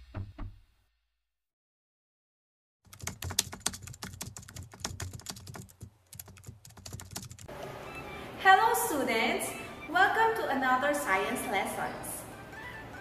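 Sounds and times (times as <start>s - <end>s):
keyboard typing clicks: 2.9s - 7.5s.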